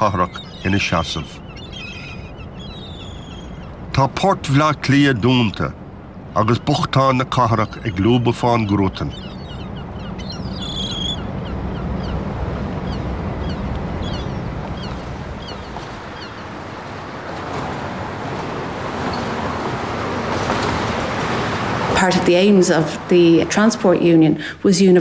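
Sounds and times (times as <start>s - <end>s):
high bird chirps: 0.0s - 3.9s, 6.6s - 16.6s
waves rushing: 0.0s - 24.1s
wind: 0.0s - 25.0s.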